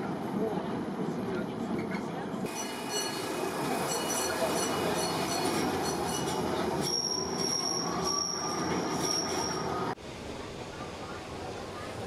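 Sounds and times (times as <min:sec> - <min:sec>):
tram rumbling on rails: 0:00.0 - 0:12.0
high wheel squeal: 0:02.5 - 0:10.0.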